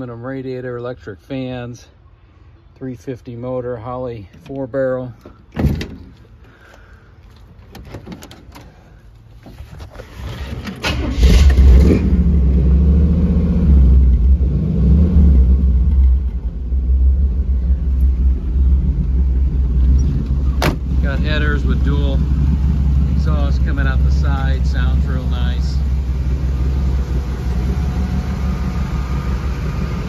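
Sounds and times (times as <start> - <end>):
truck engine starter cranking: 10.0 - 12.1
truck engine idling: 15.6 - 30.0.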